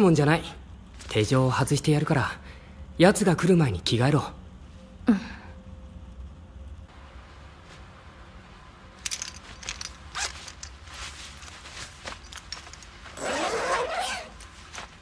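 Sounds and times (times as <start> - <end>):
cloth rustling with clicks: 9.0 - 15.0
zip pulled open: 13.1 - 14.6.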